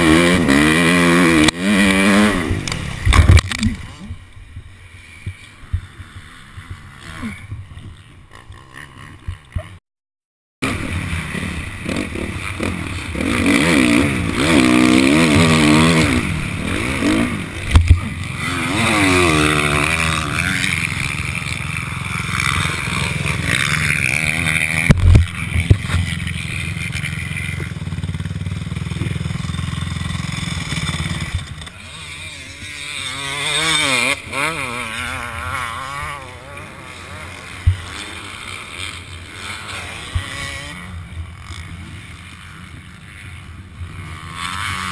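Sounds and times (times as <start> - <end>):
motorcycle engine revving: 0.0 - 9.8, 10.6 - 44.9
rustle: 10.7 - 44.9.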